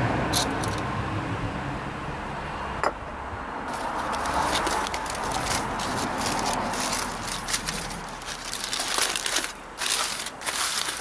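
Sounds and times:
aluminum foil crinkling: 0:03.7 - 0:11.0.

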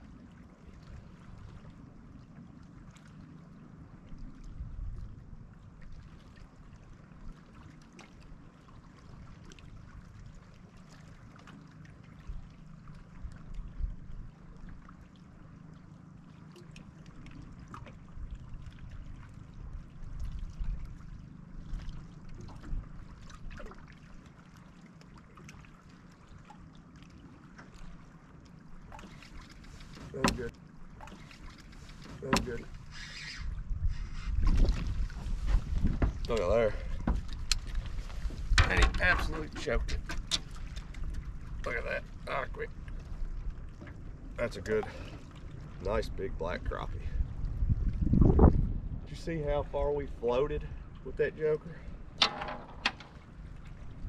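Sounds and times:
waves lapping against boat hull: 0:00.0 - 0:54.0
wind on microphone: 0:32.3 - 0:41.7, 0:45.7 - 0:51.0
faint clicks and knocks: 0:52.2 - 0:53.3.

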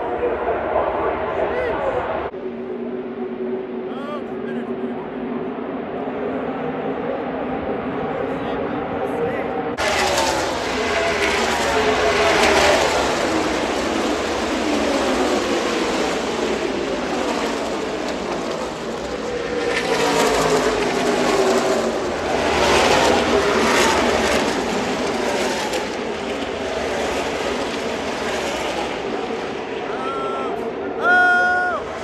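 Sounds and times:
race car engines passing: 0:00.0 - 0:32.0.

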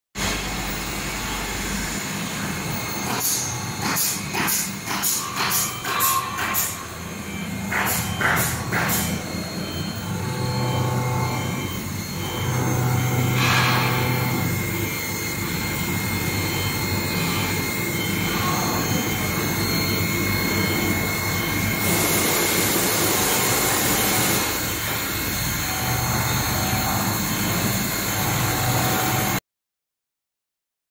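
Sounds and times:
pump motor humming with whine: 0:06.0 - 0:29.4.

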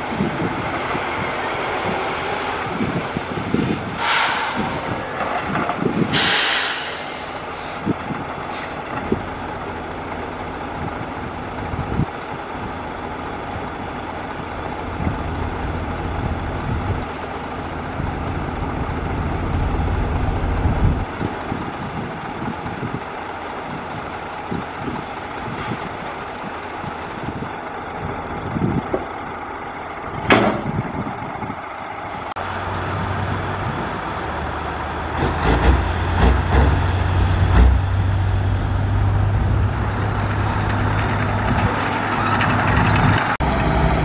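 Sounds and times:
dump truck engine running: 0:00.0 - 0:44.0
sharp air hiss: 0:04.0 - 0:04.8, 0:06.1 - 0:07.8.

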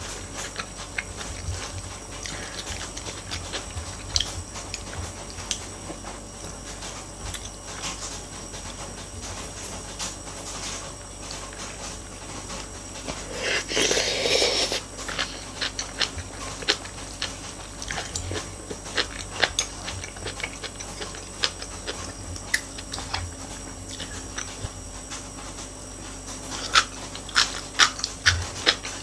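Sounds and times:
chewing: 0:00.0 - 0:29.0
loud slurp: 0:13.3 - 0:15.4.

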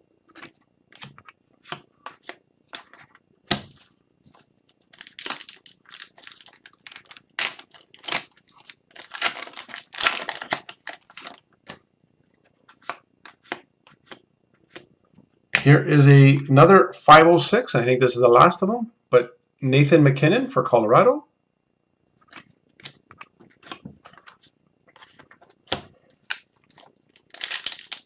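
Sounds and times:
trading cards handled: 0:00.3 - 0:14.9, 0:22.2 - 0:28.0
foil wrapper tearing and crinkling: 0:04.9 - 0:11.4, 0:26.2 - 0:28.0.

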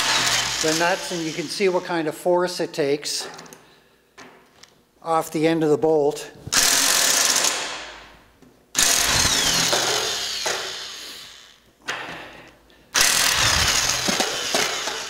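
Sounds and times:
impact wrench hammering: 0:00.0 - 0:01.1, 0:08.8 - 0:11.1, 0:13.0 - 0:15.0.

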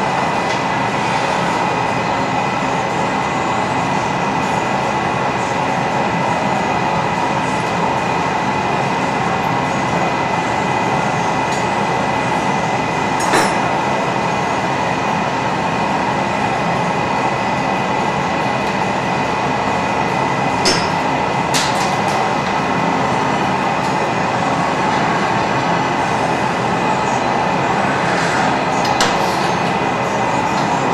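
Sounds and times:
gas burners rushing: 0:00.0 - 0:30.9.

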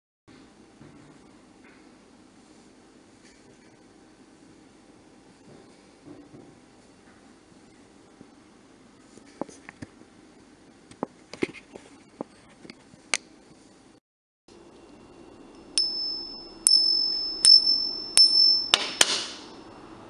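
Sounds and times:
coin strikes ringing clearly: 0:15.8 - 0:19.6.

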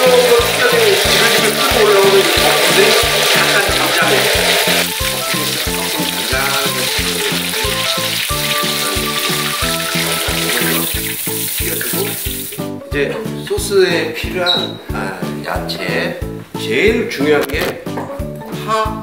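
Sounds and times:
shrimp sizzling in hot oil: 0:00.0 - 0:12.7
background music with steady beat: 0:00.0 - 0:19.0.

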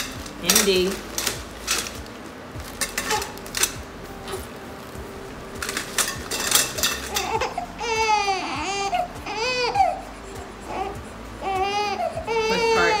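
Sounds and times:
metal tubes knocking together: 0:00.0 - 0:04.4, 0:05.5 - 0:09.9
plastic wrap rustling: 0:00.0 - 0:10.0
newborn baby crying: 0:07.2 - 0:13.0.

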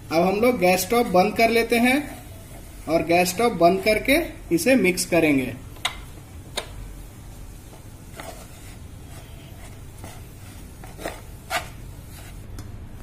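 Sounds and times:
wooden spatula scraping pan: 0:08.1 - 0:12.4.

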